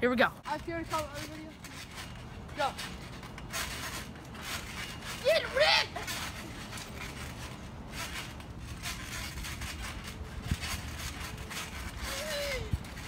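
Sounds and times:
feet bouncing on trampoline: 0:00.4 - 0:13.0.

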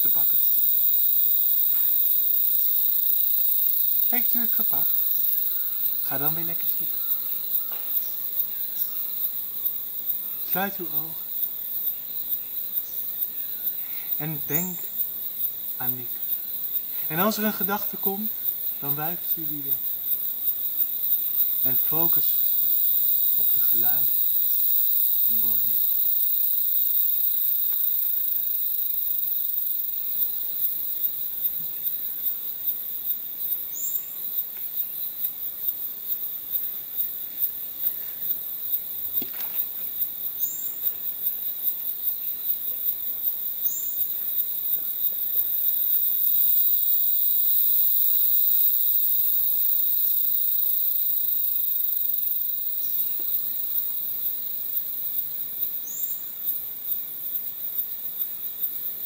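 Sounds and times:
insect chorus chirring: 0:00.0 - 0:59.0
lower insect drone: 0:00.0 - 0:59.0.

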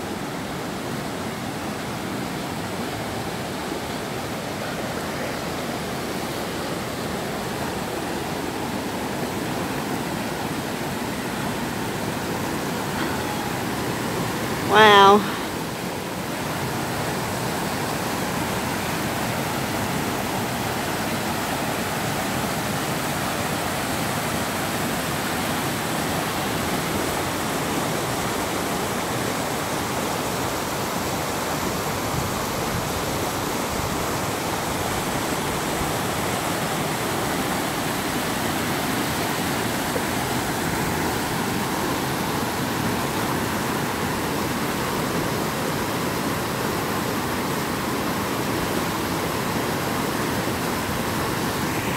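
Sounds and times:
creek rushing over rocks: 0:00.0 - 0:51.9.

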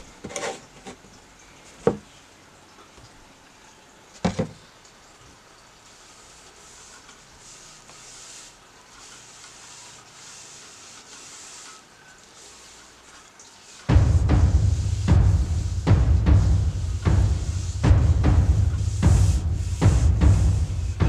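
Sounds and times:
cloth rubbing wooden handle: 0:06.2 - 0:21.0.

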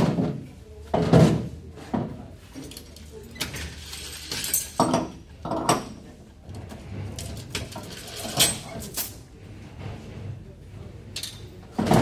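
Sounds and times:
metal scraping and clinking: 0:06.8 - 0:09.2.

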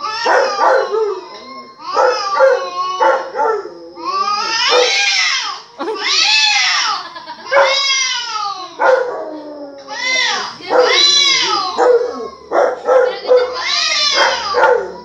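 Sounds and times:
dog howling: 0:00.0 - 0:15.0.

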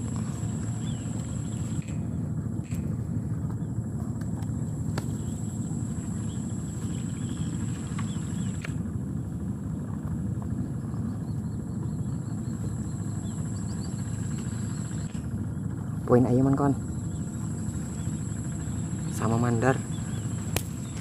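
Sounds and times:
thin high whine: 0:00.0 - 0:09.6, 0:10.9 - 0:21.0
wind buffeting microphone: 0:00.0 - 0:21.0
faint clicks and chirps: 0:00.2 - 0:02.9, 0:06.3 - 0:08.8, 0:10.4 - 0:15.8.

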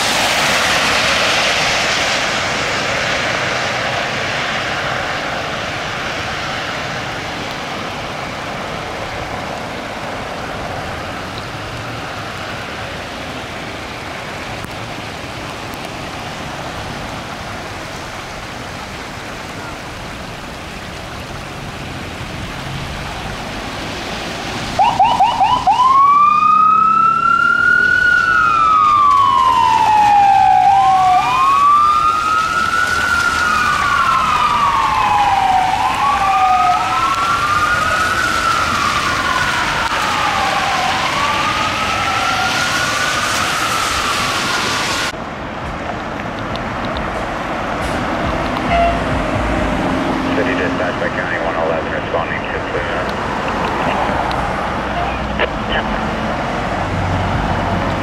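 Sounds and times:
tyres hissing on wet road: 0:00.0 - 0:58.0
electronic siren wailing: 0:24.8 - 0:45.1, 0:48.7 - 0:49.4.

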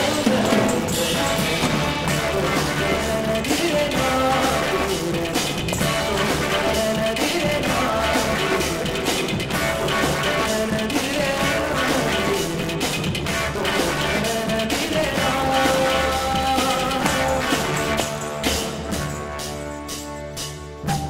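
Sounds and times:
rock band music: 0:00.0 - 0:21.0.

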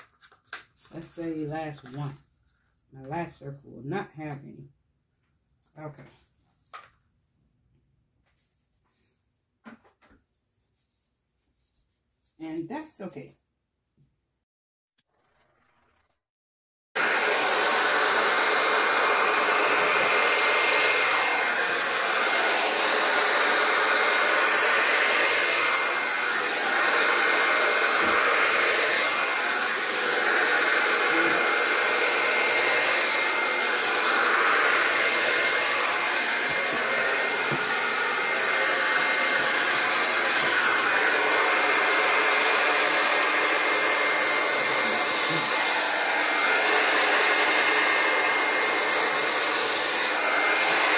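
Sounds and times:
hair dryer blowing: 0:17.0 - 0:50.9.

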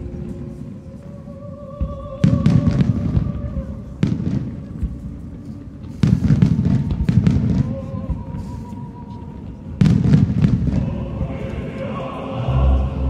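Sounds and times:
fireworks bursting: 0:01.8 - 0:12.5
fireworks crackling: 0:01.8 - 0:13.0
music with held notes: 0:11.0 - 0:13.0.

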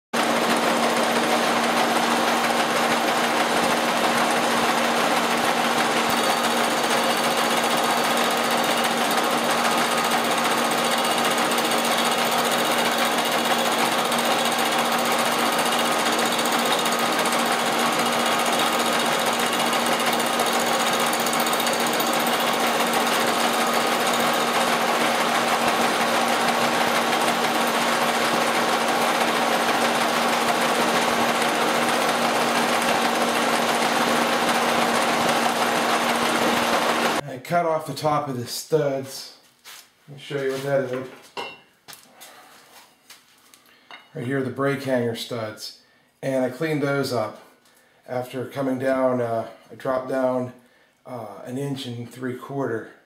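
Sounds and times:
milling machine cutting metal: 0:00.2 - 0:37.2.

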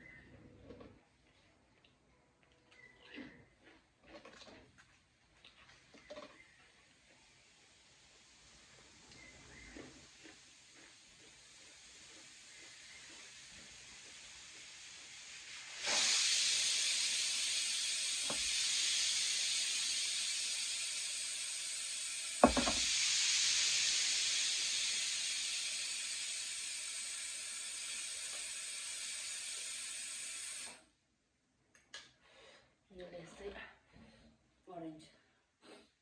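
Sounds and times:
steady hiss: 0:07.2 - 0:30.9
sharp knock: 0:22.4 - 0:22.8.

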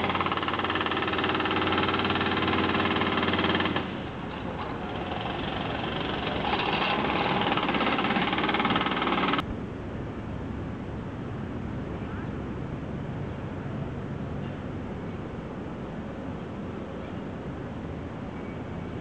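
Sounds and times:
excavator diesel engine running: 0:00.0 - 0:09.4.

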